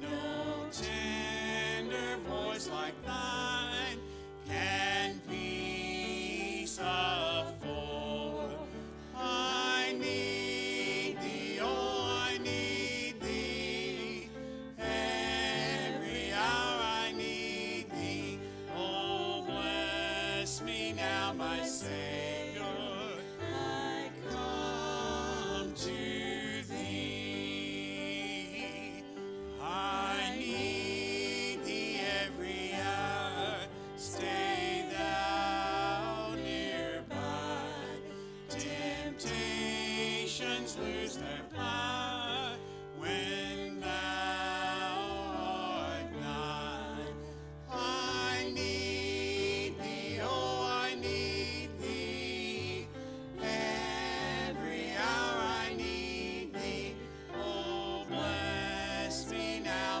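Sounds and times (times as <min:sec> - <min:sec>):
group singing a hymn: 0:00.0 - 1:00.0
piano: 0:00.0 - 1:00.0.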